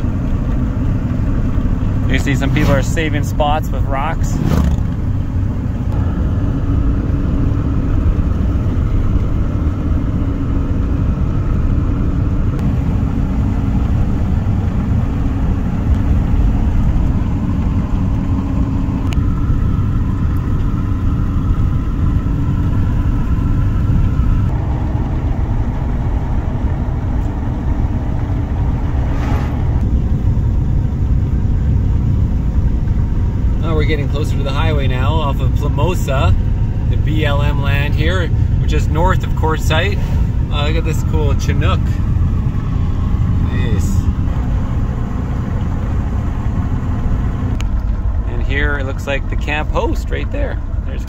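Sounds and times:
engine and road rumble in cab: 0.0 - 51.0
passing vehicle whoosh: 1.9 - 6.2, 26.7 - 31.3, 38.1 - 47.6.

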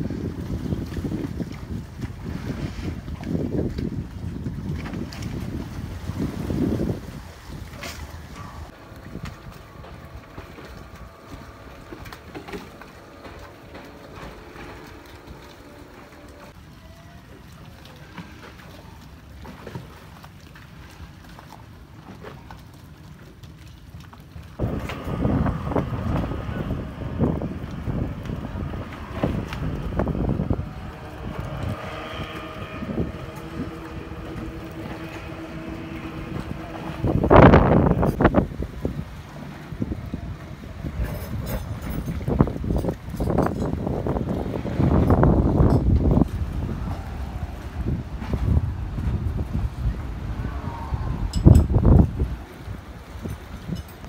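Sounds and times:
wind rumble on microphone: 0.0 - 16.6, 24.3 - 54.0
outboard engines humming: 0.0 - 54.0.

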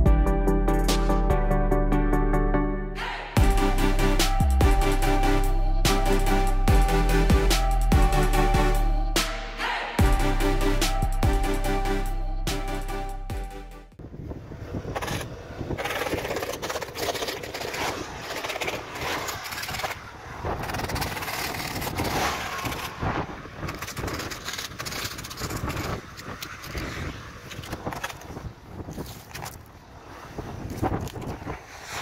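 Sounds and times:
electronic music: 0.0 - 14.0
tyre and road noise: 3.0 - 32.0
wind buffeting microphone: 14.0 - 32.0.

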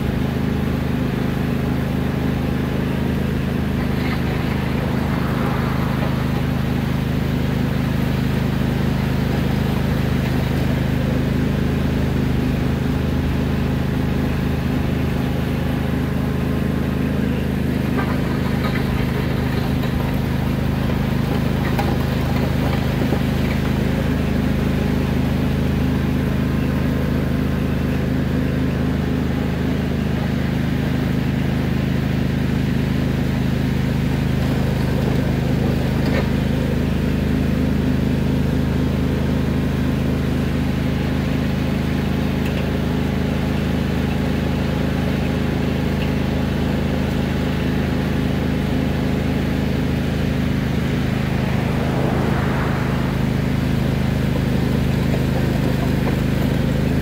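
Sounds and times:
lawn tractor engine running: 0.0 - 57.0
drag scraping over gravel: 2.0 - 11.5, 14.0 - 25.1, 47.2 - 57.0.

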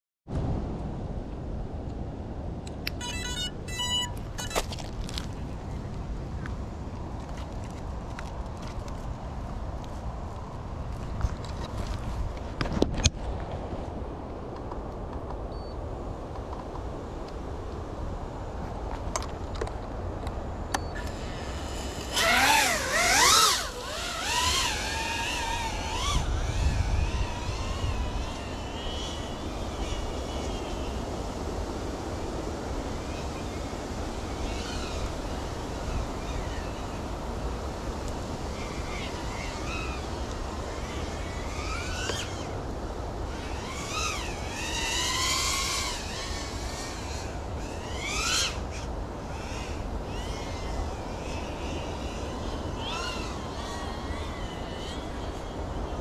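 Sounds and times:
wind rumble on microphone: 0.3 - 56.0
drone propellers whining: 2.7 - 4.9, 20.6 - 56.0.

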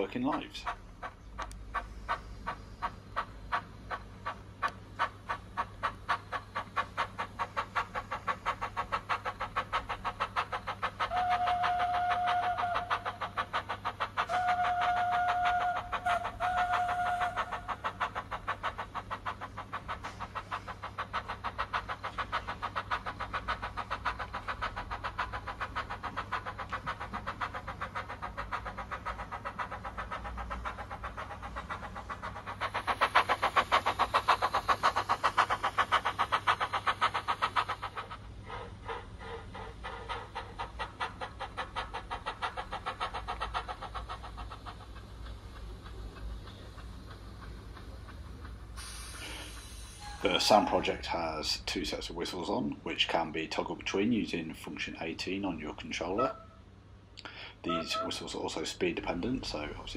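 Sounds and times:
steam locomotive chuffing: 0.0 - 59.9
locomotive whistle blasts: 11.1 - 12.9, 14.3 - 17.4, 49.9 - 50.9, 57.6 - 58.2.

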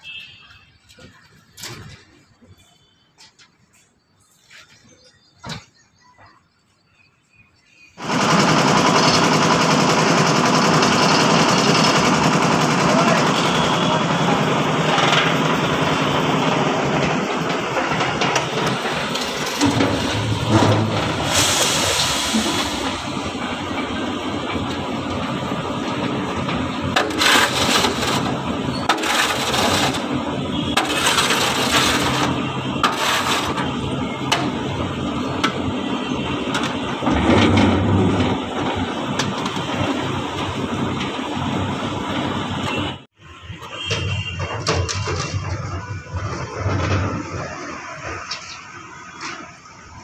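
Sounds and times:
concrete mixer engine running: 8.0 - 43.0.

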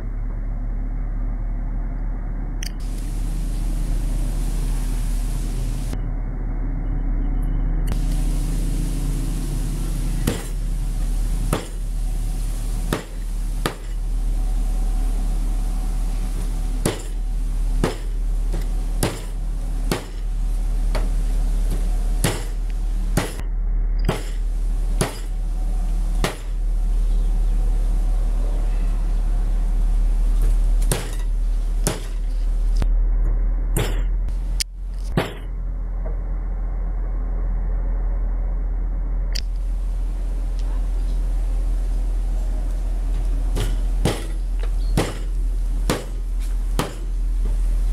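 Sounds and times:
low rumble and hiss: 0.0 - 47.9
sharp knocks: 10.2 - 10.6, 11.5 - 11.9, 12.9 - 14.0, 16.8 - 17.2, 17.8 - 20.3, 21.7 - 22.6, 23.2 - 25.3, 26.2 - 26.6, 30.9 - 32.3, 35.1 - 35.6, 43.6 - 44.4, 45.0 - 46.2, 46.8 - 47.1.

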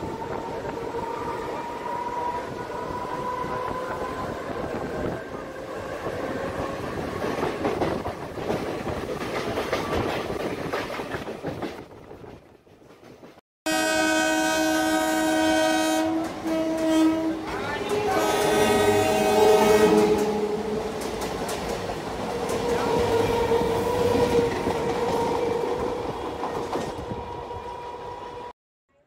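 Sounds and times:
train rattling on track: 0.0 - 13.4, 15.4 - 28.2
train horn chord: 13.7 - 20.8.

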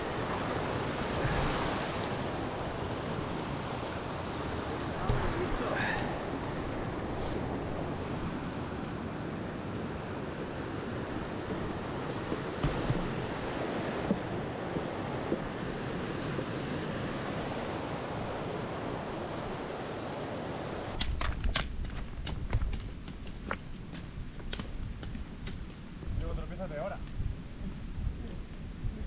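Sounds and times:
steady rushing noise: 0.0 - 29.0
low thump: 12.6 - 13.2.

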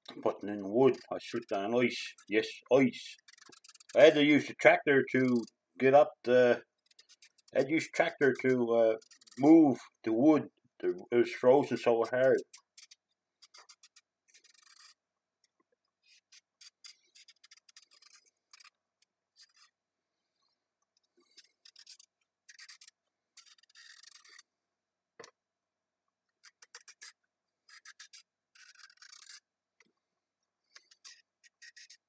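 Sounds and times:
knife scraping carrot skin: 0.1 - 9.9, 10.9 - 15.0, 16.0 - 19.7, 21.2 - 24.5, 26.4 - 29.5, 30.6 - 32.0.

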